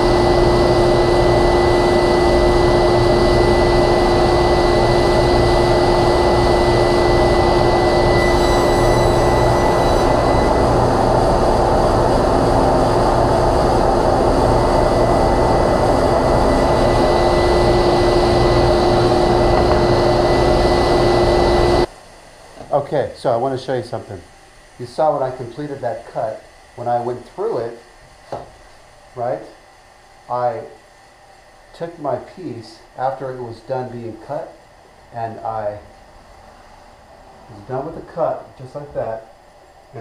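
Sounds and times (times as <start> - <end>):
table saw and dust collector whirring: 0.0 - 21.9.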